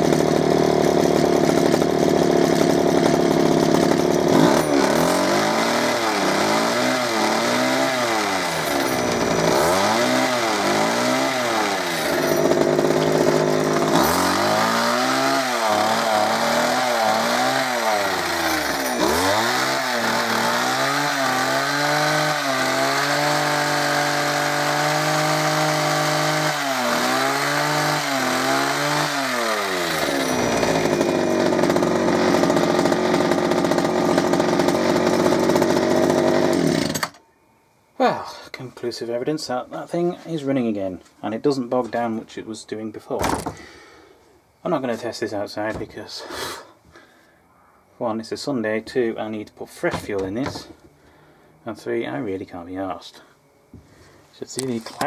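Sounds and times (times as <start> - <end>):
hedge trimmer engine revving: 0.0 - 37.2.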